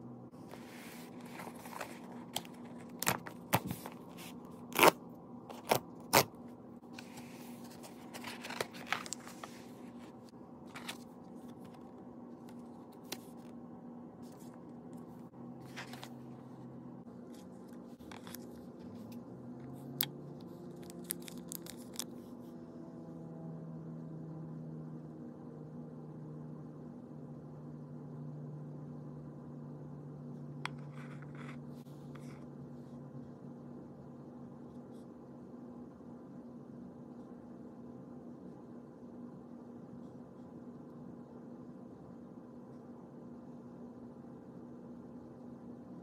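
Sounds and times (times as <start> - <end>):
steady low hum: 0.0 - 46.0
paper and cardboard rustling: 0.4 - 4.4, 6.9 - 11.9, 15.6 - 16.3.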